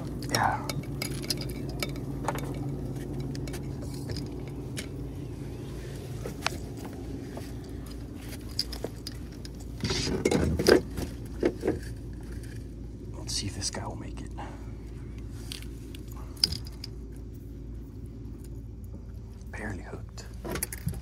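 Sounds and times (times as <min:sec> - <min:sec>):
handling clicks and scrapes: 0:00.0 - 0:12.8
low hum: 0:00.0 - 0:21.0.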